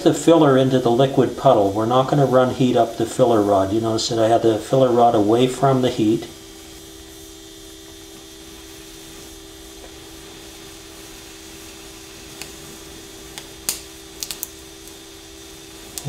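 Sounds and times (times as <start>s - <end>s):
welding torch flame hissing: 0.0s - 16.0s
sharp clicks and pops: 13.3s - 15.0s.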